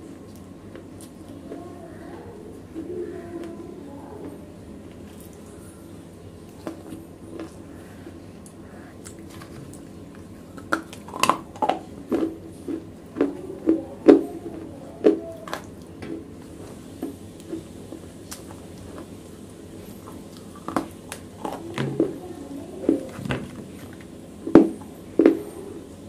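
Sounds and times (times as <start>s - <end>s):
chewing: 4.2s - 24.1s.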